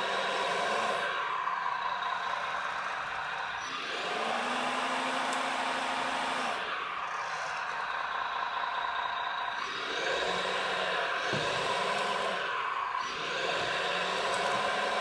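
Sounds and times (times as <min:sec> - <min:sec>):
hydraulic pump and motor whine: 0:00.0 - 0:15.0
lower motor tone: 0:00.0 - 0:15.0.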